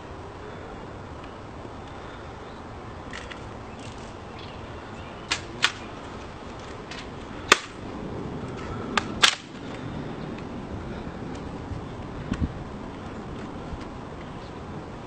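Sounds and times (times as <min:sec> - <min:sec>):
rifle parts clicking: 0:03.1 - 0:04.2, 0:05.3 - 0:05.9
hands slapping a rifle: 0:07.5 - 0:07.8, 0:09.0 - 0:09.5.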